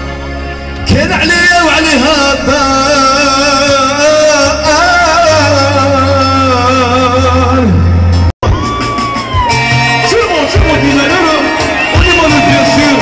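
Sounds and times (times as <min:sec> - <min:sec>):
band bass line: 0:00.0 - 0:13.0
man singing through loudspeakers: 0:00.8 - 0:08.0, 0:10.1 - 0:13.0.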